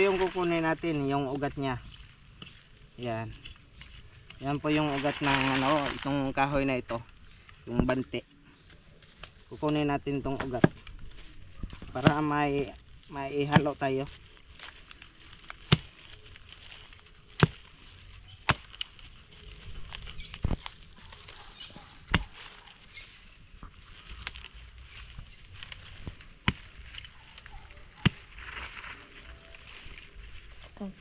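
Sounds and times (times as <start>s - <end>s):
machete chopping into soil: 9.1s - 11.0s, 11.6s - 12.4s, 13.4s - 13.8s, 15.5s - 16.1s, 17.3s - 17.8s, 18.4s - 19.0s, 22.0s - 22.5s, 25.6s - 28.6s
faint rustling: 14.0s - 31.0s.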